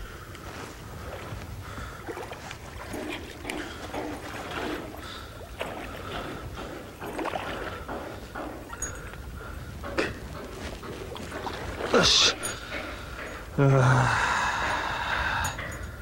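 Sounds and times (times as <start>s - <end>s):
wind rumble on microphone: 0.0s - 8.2s.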